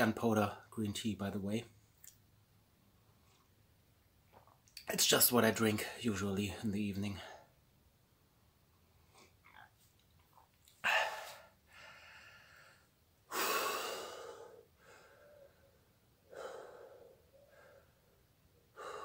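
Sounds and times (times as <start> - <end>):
man breathing hard: 10.8 - 19.0.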